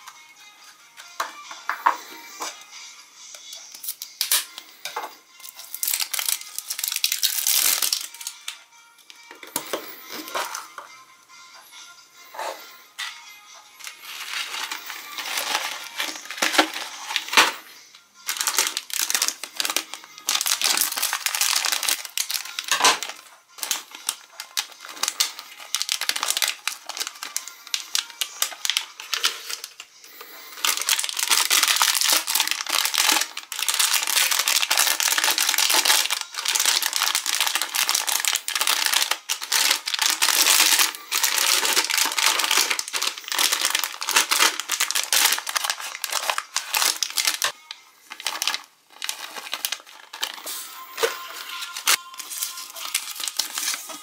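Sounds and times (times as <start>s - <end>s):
plastic wrappers crinkling and tearing: 3.5s - 8.6s, 9.4s - 10.8s, 13.8s - 17.7s, 18.3s - 54.0s.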